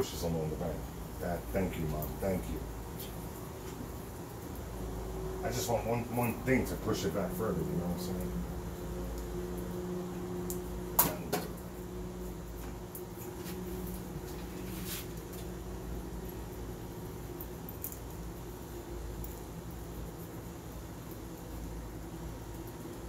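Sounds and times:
air conditioner unit humming: 0.0s - 23.0s.

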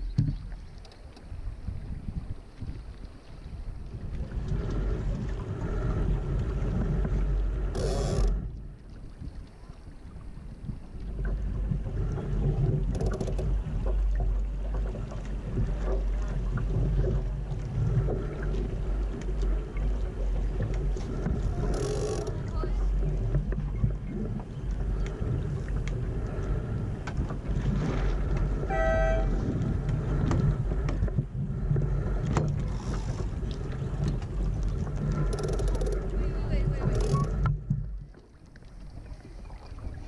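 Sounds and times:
wind on microphone: 0.0s - 38.1s
water along hull: 0.0s - 40.0s
water splashes: 0.0s - 40.0s
boat fittings clicking: 12.8s - 14.0s, 32.2s - 36.1s
short pitched tone: 28.7s - 29.3s.

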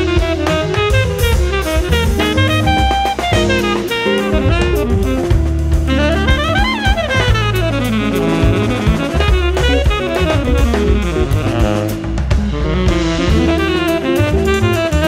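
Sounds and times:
drum kit with cymbals: 0.0s - 15.0s
plucked double bass: 0.0s - 15.0s
tenor saxophone solo: 0.0s - 15.0s.

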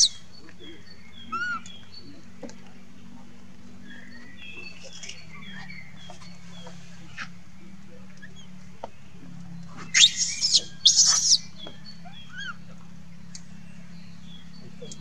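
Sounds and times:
steady low hum: 0.0s - 15.0s
baby monkey screaming: 9.9s - 12.6s.

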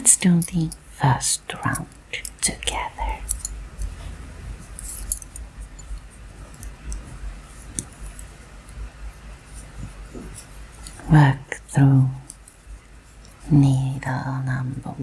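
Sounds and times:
wooden knitting needles clicking: 0.0s - 0.9s, 1.5s - 4.0s.

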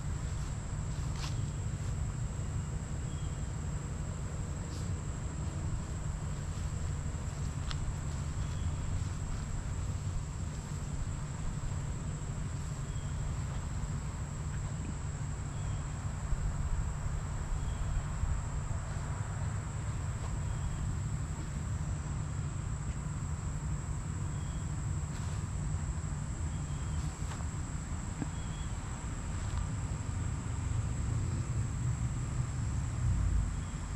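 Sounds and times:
high-pitched insect drone: 4.7s - 33.0s
faint chirp: 28.2s - 28.8s.

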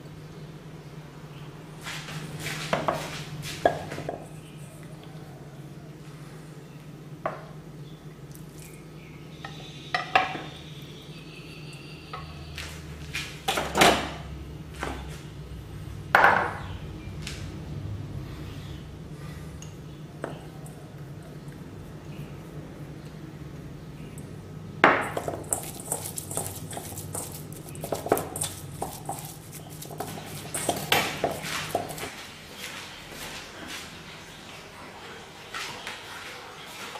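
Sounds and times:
low steady hum: 0.0s - 36.9s
meat mixed by hand: 25.0s - 34.3s.

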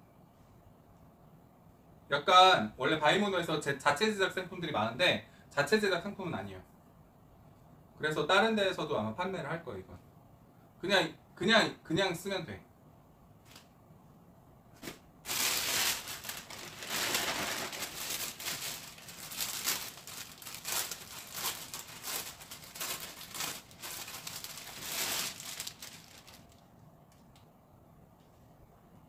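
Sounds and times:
plastic bag crinkling: 15.2s - 27.2s.

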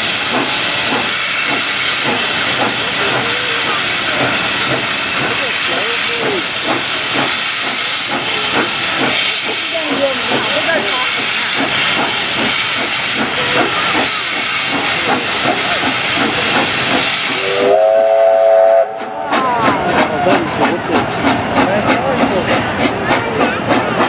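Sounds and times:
steam hissing from locomotive: 0.0s - 24.0s
steam locomotive chime whistle: 17.4s - 19.1s.

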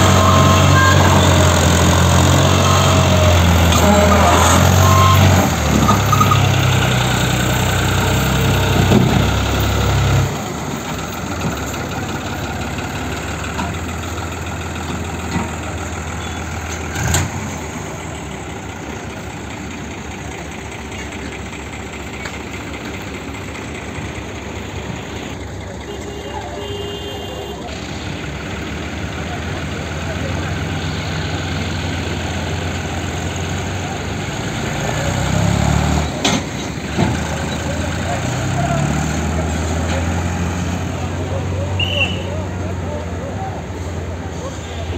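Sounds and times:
tractor diesel engine under load: 0.0s - 44.9s.

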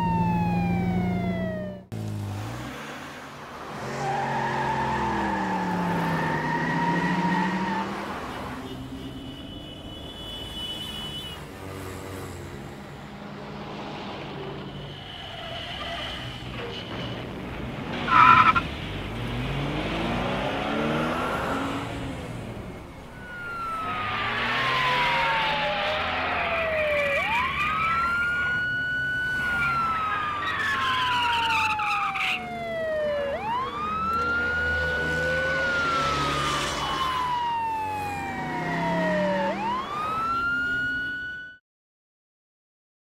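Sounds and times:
police siren wailing: 0.0s - 1.9s, 3.8s - 8.4s, 18.1s - 18.6s, 19.7s - 41.6s
car engines passing: 0.0s - 9.0s, 11.4s - 41.3s.

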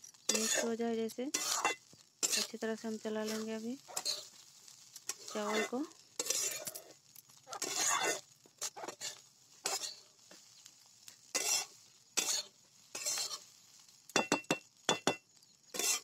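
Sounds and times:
metal spatula scraping metal pan: 0.2s - 2.6s, 3.2s - 4.3s, 5.1s - 6.9s, 7.5s - 10.0s, 11.3s - 13.5s, 15.7s - 16.0s.

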